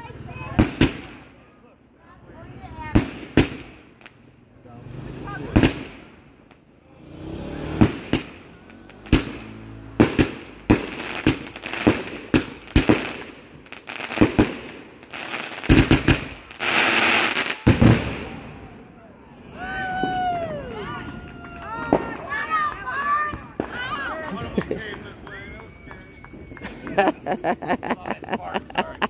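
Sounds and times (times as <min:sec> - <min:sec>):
firework bangs: 0:00.4 - 0:01.4, 0:02.8 - 0:04.3, 0:05.2 - 0:06.6, 0:07.2 - 0:18.9, 0:21.7 - 0:23.9
firework crackle: 0:00.4 - 0:01.4, 0:02.9 - 0:04.3, 0:05.5 - 0:06.6, 0:07.6 - 0:18.6.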